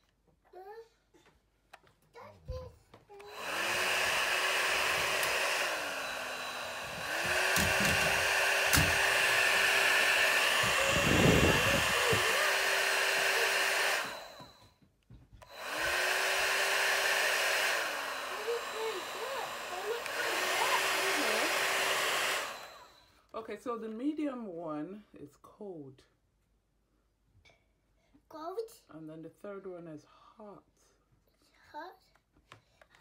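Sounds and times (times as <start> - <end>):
hot air styler fan whirring: 3.2 - 14.7, 15.4 - 23.0.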